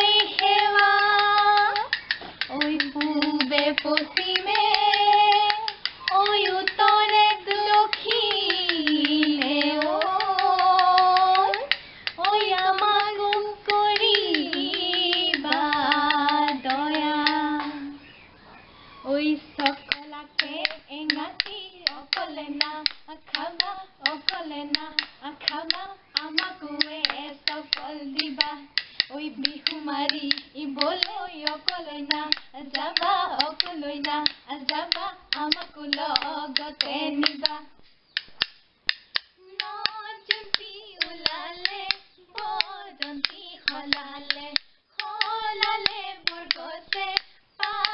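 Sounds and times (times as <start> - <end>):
hand claps: 0.0 - 17.7, 19.6 - 37.6, 38.2 - 47.9
bamboo clapper clacking: 0.0 - 18.0, 19.2 - 47.9
women singing folk song: 0.0 - 18.2, 19.0 - 38.3, 38.9 - 47.9.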